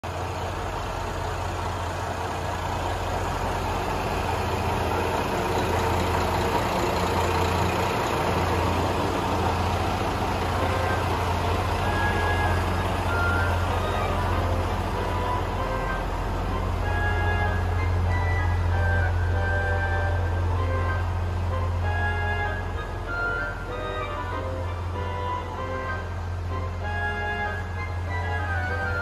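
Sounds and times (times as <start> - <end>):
bus engine humming: 0.0 - 29.0
road noise: 0.0 - 29.0.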